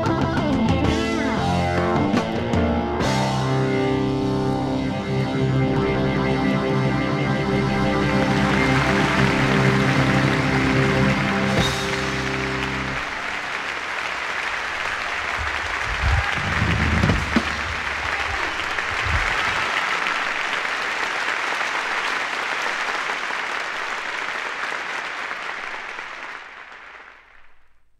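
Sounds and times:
audience applauding: 6.8 - 27.7.

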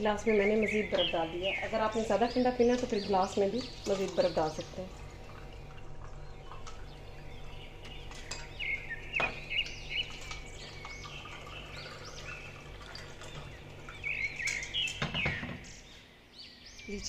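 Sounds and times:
birds chirping: 0.0 - 17.0
liquid pouring into glasses: 3.6 - 14.8.

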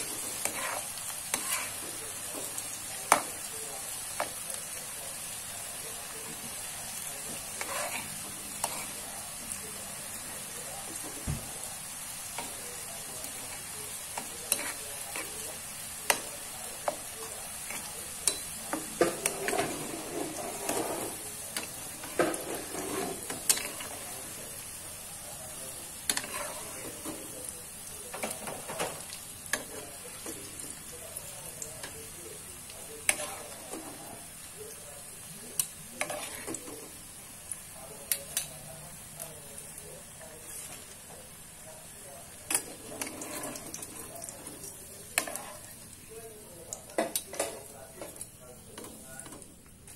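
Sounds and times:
metal spatula scraping a pan: 0.0 - 2.5, 7.2 - 9.0, 14.2 - 15.5, 17.6 - 24.1, 26.1 - 27.2, 33.0 - 34.2, 36.0 - 36.7, 42.5 - 45.8
food sizzling in hot oil: 0.0 - 49.9.

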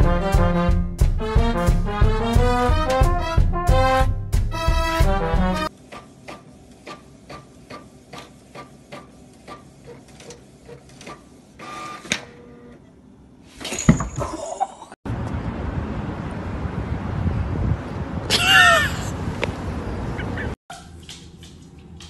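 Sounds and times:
printer mechanical whir: 5.7 - 12.9.

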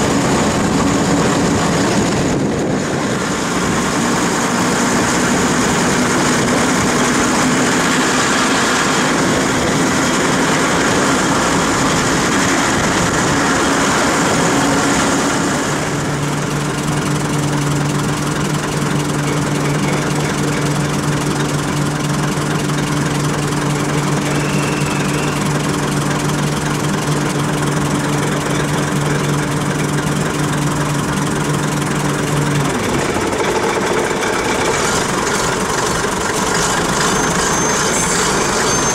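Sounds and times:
wind noise: 0.0 - 7.3
rail noise: 0.0 - 38.9
train diesel engine running: 0.0 - 38.9.

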